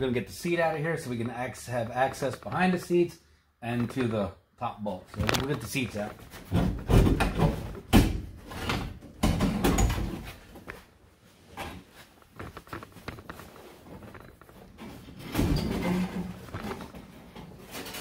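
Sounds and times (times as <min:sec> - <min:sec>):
thumps and scraping: 0:05.0 - 0:18.0
rubbing and shuffling: 0:10.2 - 0:15.2.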